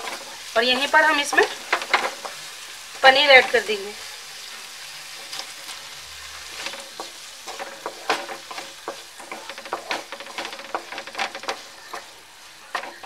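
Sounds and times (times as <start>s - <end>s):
wooden spatula scraping pan: 0.0s - 3.8s, 5.0s - 13.0s
food sizzling in pan: 0.0s - 13.0s.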